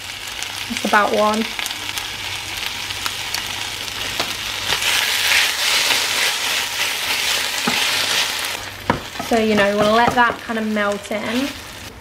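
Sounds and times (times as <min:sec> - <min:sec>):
vegetables sizzling in a frying pan: 0:00.0 - 0:12.0
wooden spoon stirring: 0:04.0 - 0:11.7.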